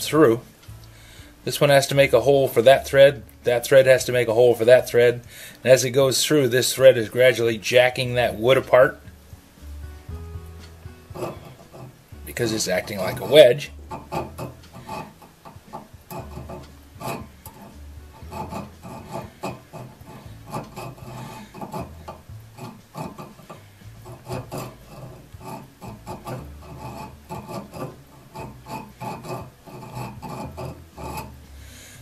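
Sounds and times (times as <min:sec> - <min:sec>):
file rasping on steel: 0:10.1 - 0:32.0.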